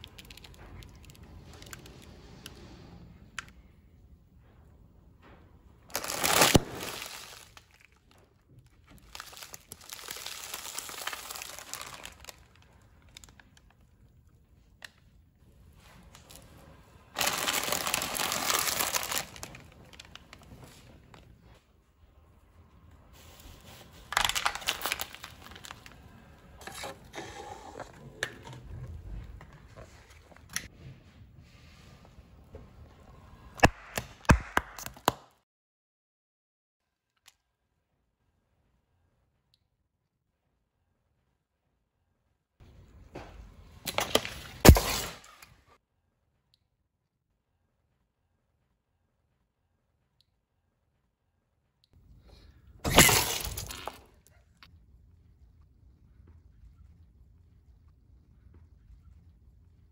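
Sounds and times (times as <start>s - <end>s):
packet crinkling under tyre: 0.0s - 2.0s, 5.9s - 8.2s, 8.9s - 13.8s, 17.1s - 20.5s, 24.0s - 26.0s
pastries squishing: 0.0s - 2.0s, 5.9s - 14.8s
plastic bag bursting: 5.9s - 8.1s, 8.9s - 12.5s, 17.1s - 20.5s, 24.1s - 26.0s, 43.8s - 45.4s, 52.8s - 54.1s
plastic tray crackling and crunching: 5.9s - 8.1s, 8.9s - 13.5s, 17.2s - 20.3s, 24.1s - 26.0s.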